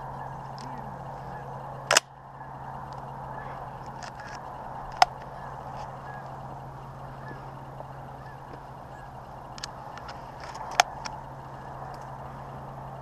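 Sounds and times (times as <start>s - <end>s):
distant geese honking: 0.0s - 13.0s.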